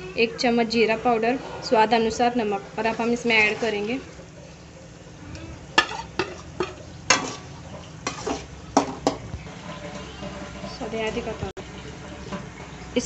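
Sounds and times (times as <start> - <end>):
low frying sizzle: 0.0 - 13.0
metal spatula scraping pan: 1.2 - 4.1, 5.7 - 12.9.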